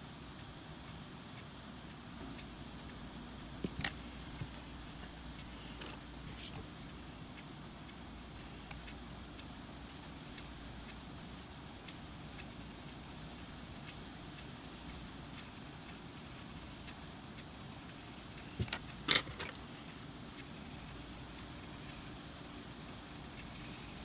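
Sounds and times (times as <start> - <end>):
pencil scratching on paper: 20.5 - 24.0.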